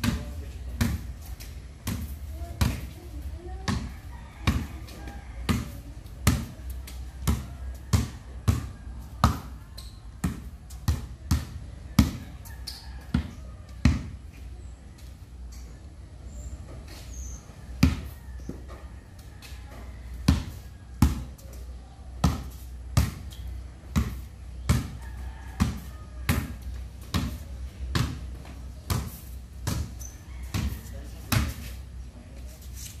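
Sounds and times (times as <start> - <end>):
basketball bouncing on concrete: 0.0 - 14.2, 17.8 - 18.8, 20.1 - 21.6, 22.2 - 31.8.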